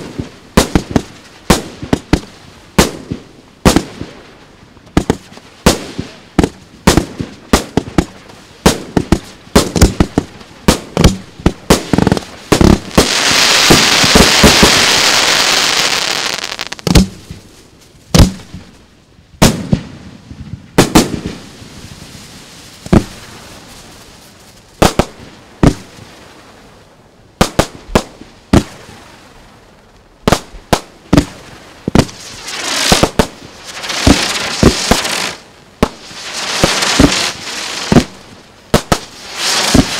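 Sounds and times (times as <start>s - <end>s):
firework rushing noise: 11.7s - 17.5s, 31.9s - 39.9s
firework shells bursting: 11.9s - 17.4s, 32.0s - 38.2s.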